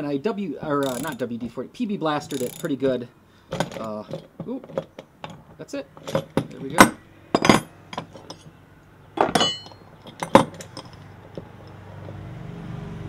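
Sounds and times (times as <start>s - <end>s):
steel tool pieces clinking: 0.8s - 1.6s, 2.2s - 2.9s, 3.5s - 8.6s, 9.2s - 11.8s
passing car: 9.9s - 13.0s.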